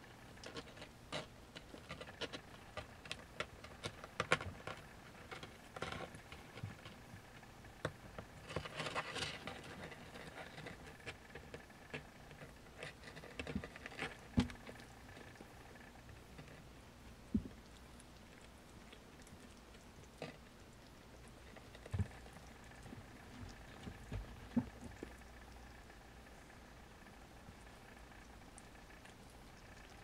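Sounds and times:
kitten claws scratching wood: 0.2s - 16.7s, 21.2s - 25.2s.

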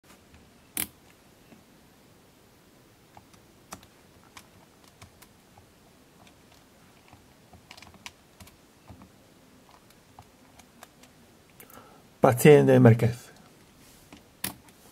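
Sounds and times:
plastic keyboard keys clicking: 6.2s - 9.1s.

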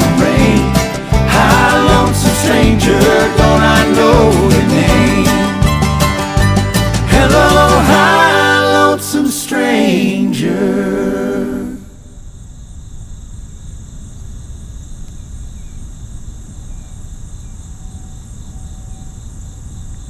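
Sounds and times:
unaccompanied harmony singing: 0.0s - 5.9s, 6.9s - 12.0s
high insect chorus: 11.8s - 20.0s.

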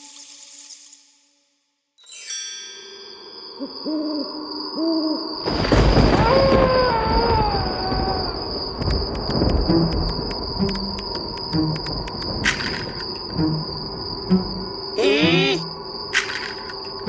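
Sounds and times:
owl hooting: 3.6s - 5.3s, 15.0s - 15.7s.

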